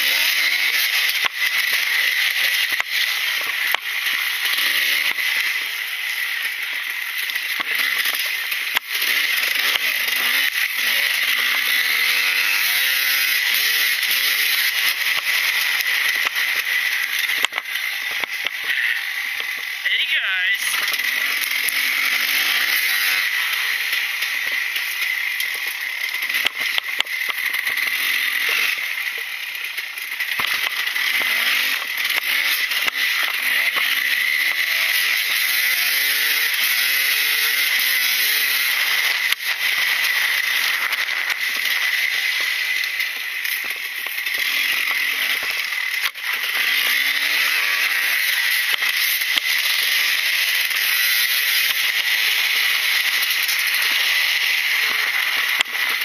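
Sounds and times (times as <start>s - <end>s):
two-stroke dirt bike engine revving: 0.0s - 56.0s
bike rattling clicks and knocks: 23.4s - 37.0s.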